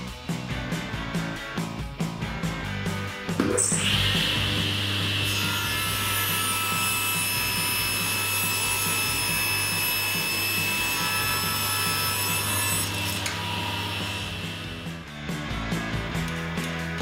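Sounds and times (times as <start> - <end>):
saw blade cutting wood: 3.4 - 15.0
table saw motor hum and whine: 3.6 - 15.0.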